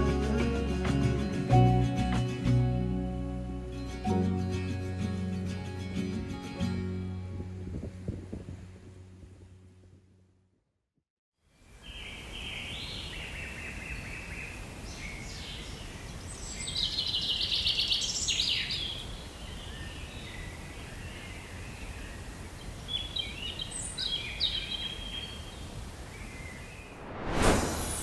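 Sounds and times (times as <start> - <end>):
small songbirds chirping and singing: 11.7 - 26.9.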